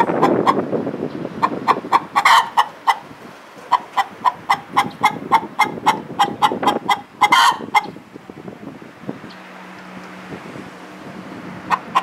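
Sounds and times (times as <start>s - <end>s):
hen cackling: 0.0s - 0.6s, 1.4s - 3.1s, 3.7s - 8.0s, 11.7s - 12.0s
hen squawk: 1.7s - 3.0s, 3.7s - 7.9s.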